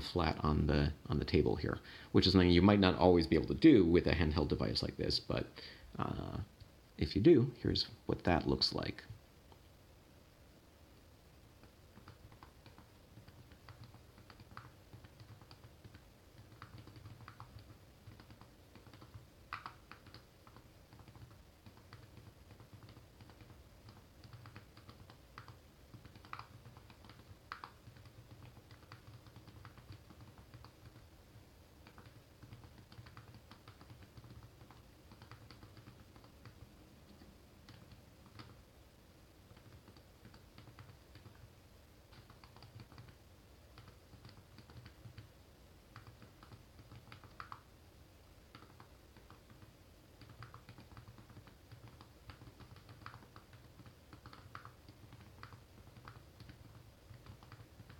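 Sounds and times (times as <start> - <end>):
small keyboard typing: 11.6 - 38.6, 39.4 - 41.5, 42.1 - 47.7, 48.4 - 57.9.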